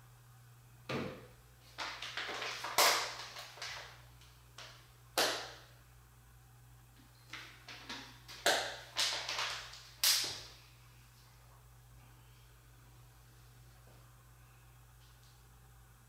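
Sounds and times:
plastic bottle crackling: 1.7 - 4.0, 7.4 - 10.4.

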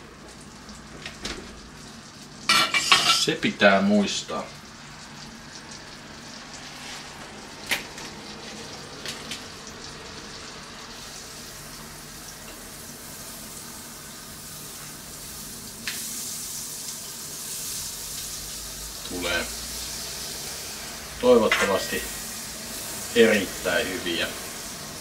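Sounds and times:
butter sizzling in a frying pan: 0.0 - 25.0
metal utensil scraping pan: 2.5 - 3.3.

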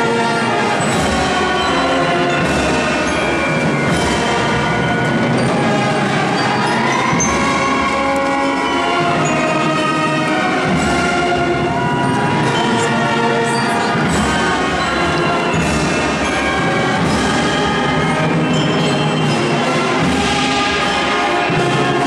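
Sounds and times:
brass band playing held chords: 0.0 - 22.0.

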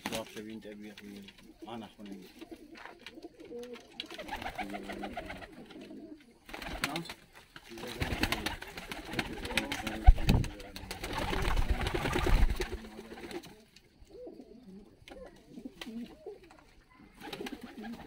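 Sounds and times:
rustling: 0.0 - 13.8
pigeons cooing: 1.0 - 7.1, 7.7 - 18.0.

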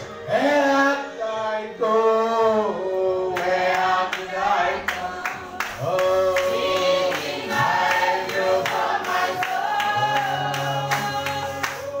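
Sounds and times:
congregation singing: 0.0 - 12.0
hand claps: 4.9 - 12.0.

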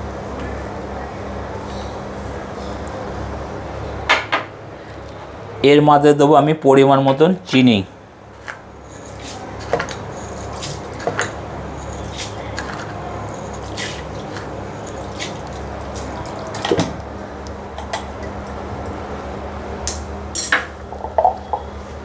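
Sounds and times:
steady low hum: 7.4 - 22.0.

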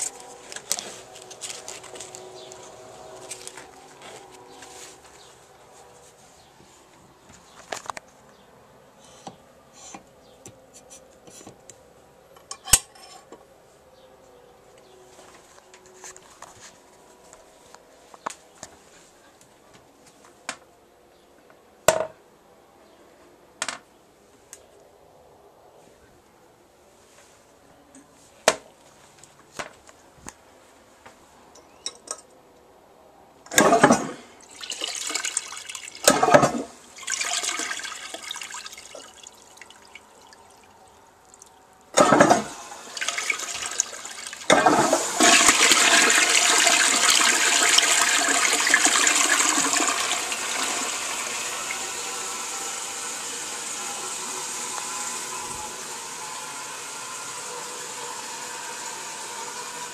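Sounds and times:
toilet water rushing: 33.5 - 40.7, 41.9 - 59.9
water gushing in toilet: 33.6 - 40.7, 41.3 - 59.9.

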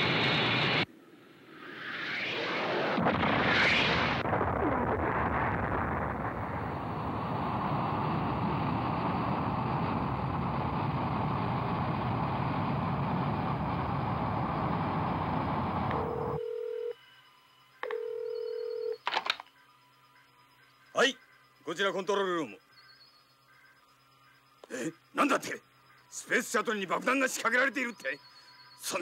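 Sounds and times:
explosion rumble: 2.3 - 15.9
telephone ringing: 15.9 - 17.0, 17.8 - 28.9.

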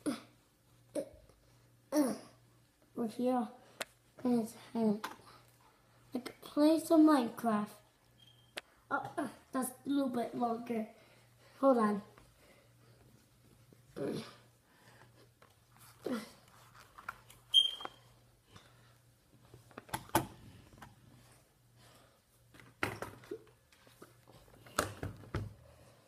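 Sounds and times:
short high-pitched squeak: 8.2 - 8.6, 17.5 - 18.0.

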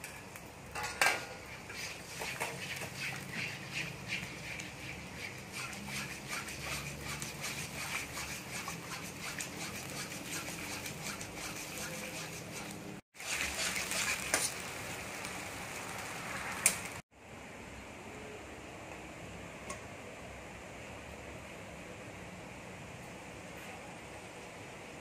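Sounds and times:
ladle clicking on wok: 0.0 - 14.7
ladle scraping wok: 0.0 - 17.0
sauce bubbling and sizzling: 1.3 - 17.1.

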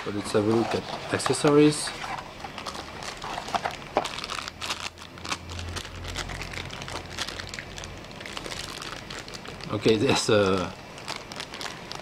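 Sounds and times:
cardboard rustling and scraping: 0.0 - 4.2
plastic wrap crinkling: 0.0 - 12.0.

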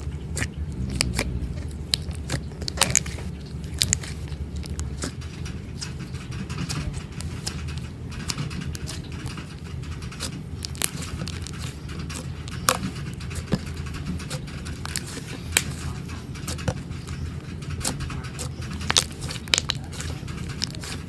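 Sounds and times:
slime squelching with sticky pops: 0.0 - 21.0.

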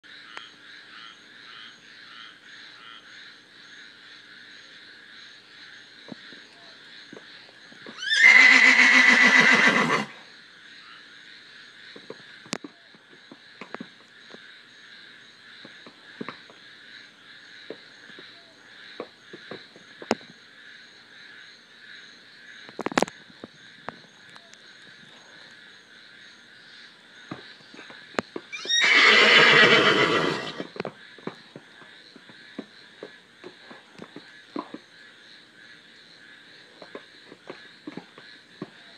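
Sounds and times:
horse whinnying: 7.9 - 10.2, 28.5 - 30.7.

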